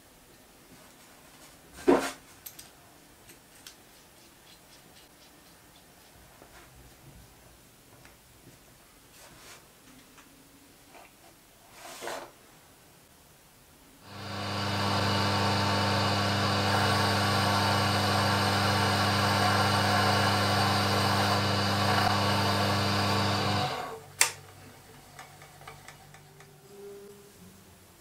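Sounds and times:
lathe motor running: 14.1 - 24.0.

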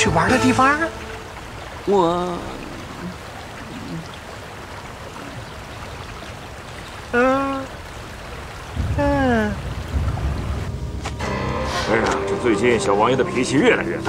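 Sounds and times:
low rumble: 8.7 - 13.1.

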